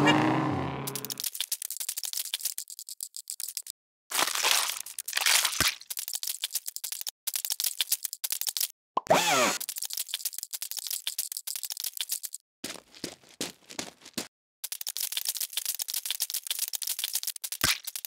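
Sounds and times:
small plastic clicks and rattles: 0.9 - 3.7, 4.8 - 8.7, 9.6 - 12.4, 14.6 - 18.0.

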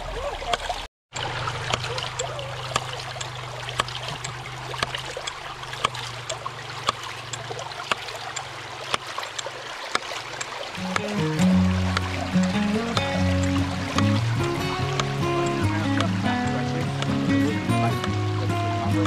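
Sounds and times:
creek water rushing: 0.0 - 19.0
pump valve snapping shut: 10.8 - 19.0.

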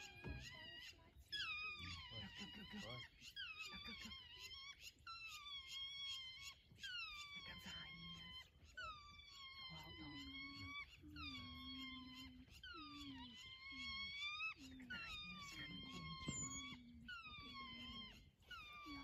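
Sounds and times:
wild dogs whining calls: 0.0 - 19.0
low moaning calls: 7.4 - 19.0.

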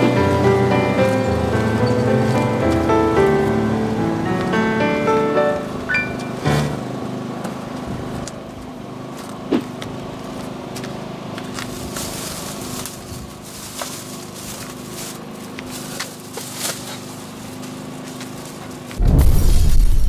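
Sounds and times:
steady hum: 0.0 - 20.0
gear clicks knocks and rustles: 7.4 - 19.0.

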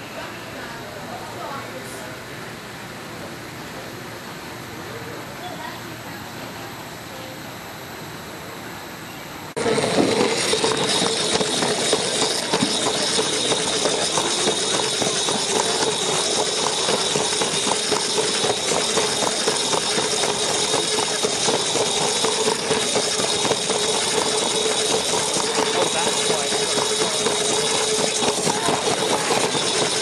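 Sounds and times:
wheels rattling on track: 9.5 - 30.0
electric motor whine: 9.6 - 30.0.

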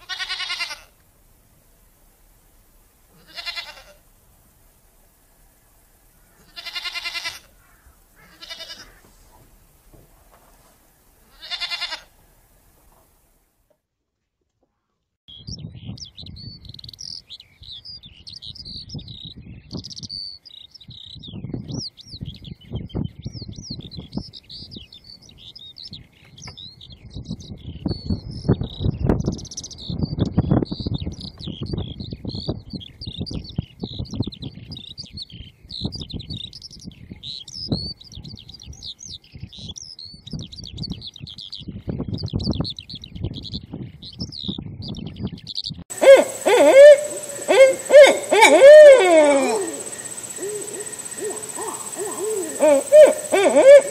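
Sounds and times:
skylark singing: 15.3 - 53.9
owl call: 45.9 - 53.9.

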